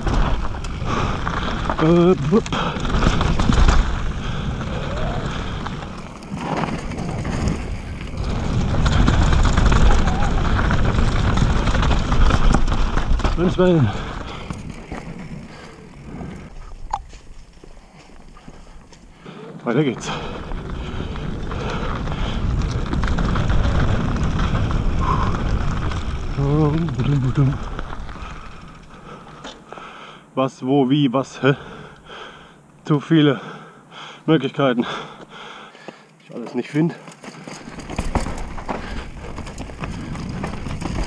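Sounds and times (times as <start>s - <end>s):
bike rattling: 0.0s - 30.1s, 36.6s - 41.0s
tyres rolling over dirt: 0.0s - 30.2s, 36.3s - 41.0s
wind buffeting microphone: 20.1s - 29.4s.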